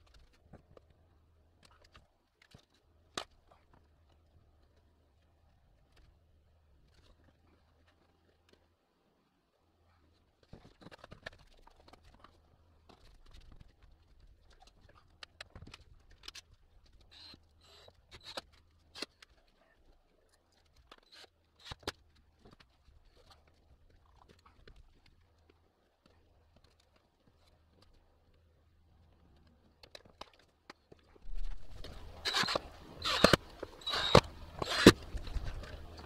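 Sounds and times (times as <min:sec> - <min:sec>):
low steady hum: 0:31.1 - 0:36.0.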